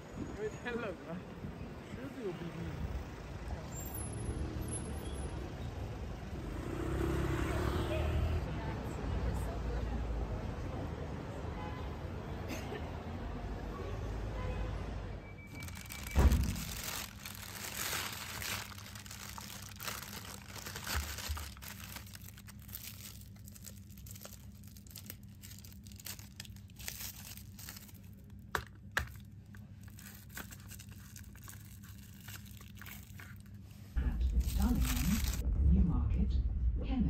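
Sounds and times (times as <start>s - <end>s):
plastic bag rustling and crinkling: 15.5s - 35.4s
straw wrapper tearing: 15.6s - 33.6s, 34.3s - 35.4s
low train hum: 15.6s - 37.0s.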